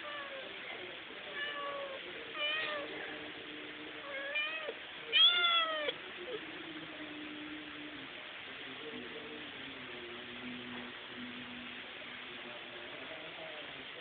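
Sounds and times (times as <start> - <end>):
cat meowing: 1.4 - 2.9, 4.1 - 6.0.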